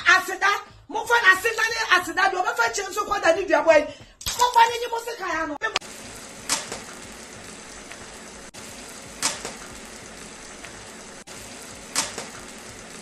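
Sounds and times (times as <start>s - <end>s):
oil spattering crackle: 4.2s - 4.8s, 5.8s - 13.0s
egg sizzling in oil: 5.8s - 13.0s.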